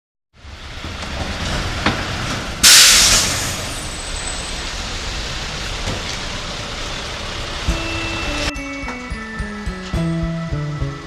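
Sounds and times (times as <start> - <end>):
loud burst of noise: 2.6 - 4.0.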